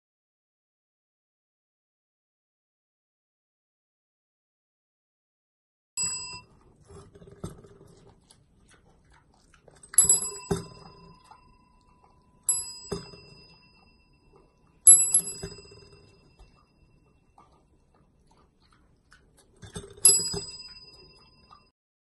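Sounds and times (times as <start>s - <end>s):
desk bell ringing: 6.0s - 6.5s, 10.0s - 16.6s, 20.0s - 21.7s
pig grunting softly: 6.4s - 12.3s, 15.4s - 20.1s.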